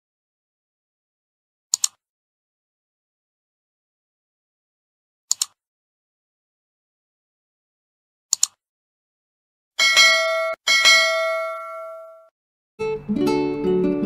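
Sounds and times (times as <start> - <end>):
double mouse click: 1.7 - 2.0, 5.3 - 5.6, 8.3 - 8.6
bell chime ringing: 9.8 - 12.3.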